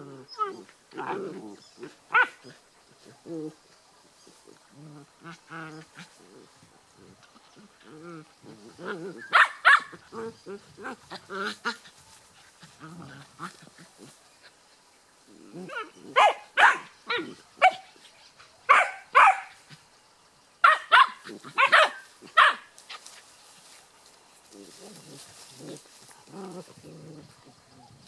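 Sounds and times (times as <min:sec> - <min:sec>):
puppies growling: 0:00.0 - 0:14.6, 0:15.2 - 0:16.3, 0:24.5 - 0:28.0.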